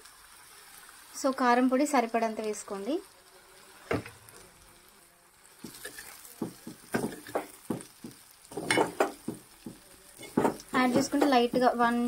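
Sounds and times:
metal ladle scraping a pot: 5.7s - 6.2s.

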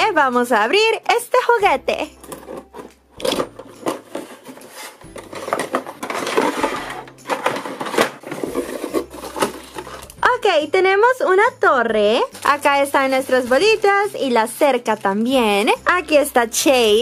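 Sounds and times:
game parts rustling and knocking: 2.2s - 10.2s
paper rustling: 3.5s - 10.2s.

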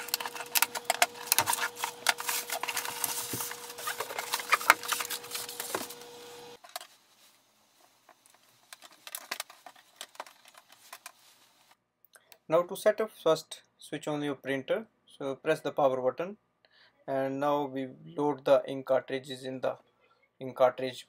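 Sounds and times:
packaging rustling and crackling: 0.0s - 11.8s.

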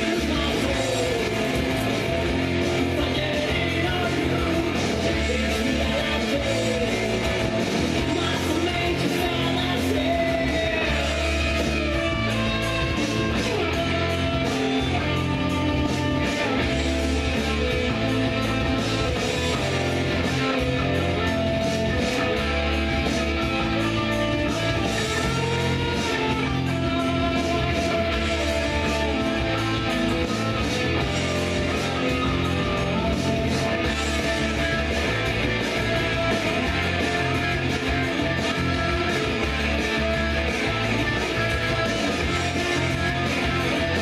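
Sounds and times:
person singing: 0.0s - 15.2s
rock song with guitar: 0.0s - 44.0s.

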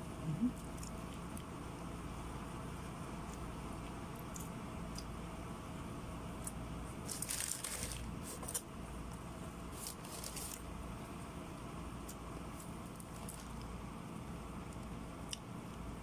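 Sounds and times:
steady low hum: 0.0s - 16.0s
plastic bag and foil crinkling: 7.0s - 8.7s, 9.7s - 10.6s, 12.6s - 13.7s.

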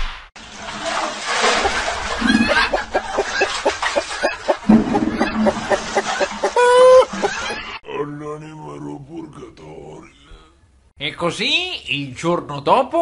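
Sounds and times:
short held pitched cry: 6.5s - 7.1s.

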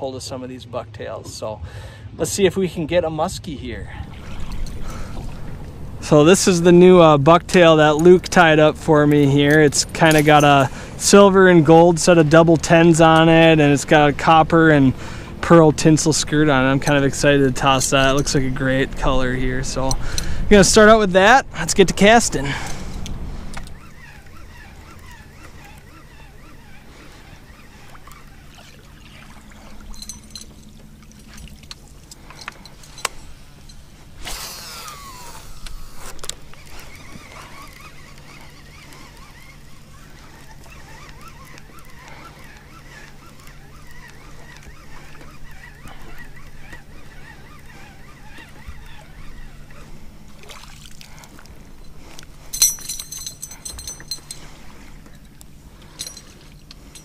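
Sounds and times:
steady low hum: 0.0s - 57.0s
fishing reel reeling in: 32.2s - 50.0s.

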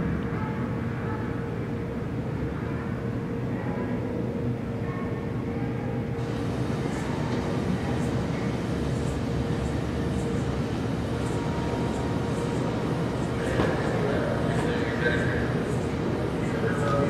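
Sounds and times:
faint constant hum: 0.0s - 17.0s.

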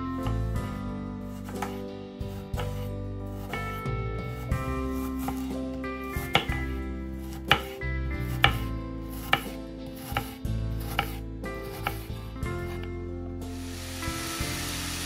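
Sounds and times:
knife chopping on cutting board: 1.3s - 12.9s.

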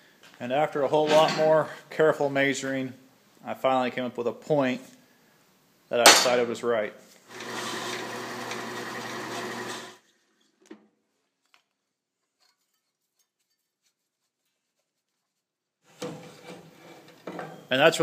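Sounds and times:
drill press motor running: 7.3s - 10.0s.

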